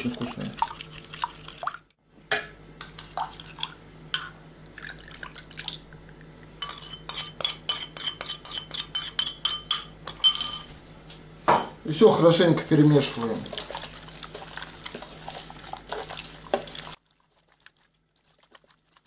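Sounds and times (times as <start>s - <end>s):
marinade pouring and dripping: 4.5s - 6.6s, 13.0s - 19.0s
metal spoon clinking on bowl: 6.6s - 10.7s.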